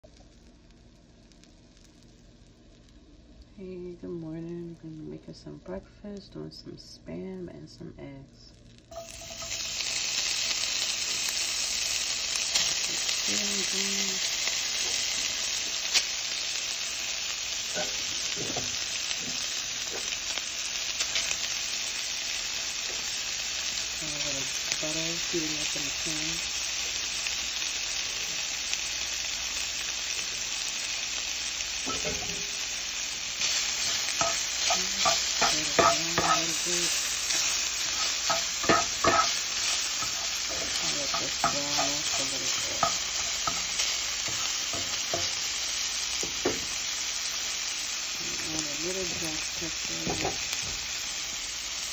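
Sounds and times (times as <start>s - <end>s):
meat sizzling in a pan: 0.0s - 5.7s, 8.5s - 51.9s
spatula scraping pan: 31.8s - 32.5s, 33.4s - 45.5s.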